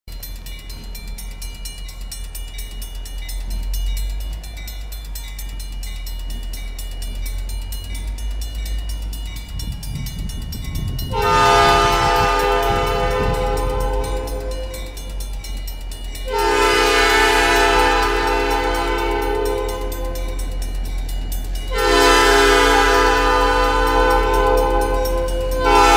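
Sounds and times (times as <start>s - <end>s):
locomotive engine rumble: 0.1s - 25.9s
locomotive air horn blasts: 11.0s - 15.0s, 16.2s - 20.5s, 21.7s - 25.9s.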